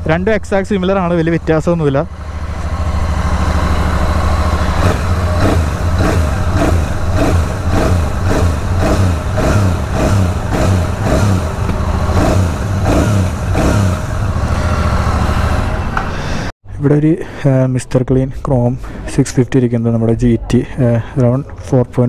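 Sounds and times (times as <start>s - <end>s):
motorcycle engine idling: 0.0s - 16.1s
engine throttle blips: 0.0s - 16.5s.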